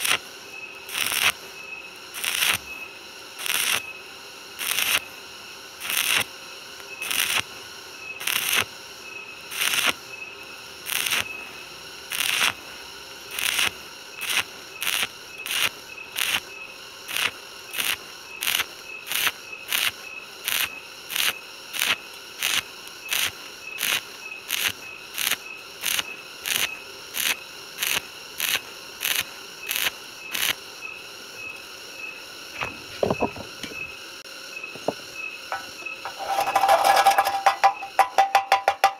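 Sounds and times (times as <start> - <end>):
welding arc crackle: 0.0 - 1.4, 2.0 - 2.7, 3.4 - 3.9, 4.5 - 7.6, 8.2 - 10.1, 10.8 - 30.6, 35.5 - 38.9.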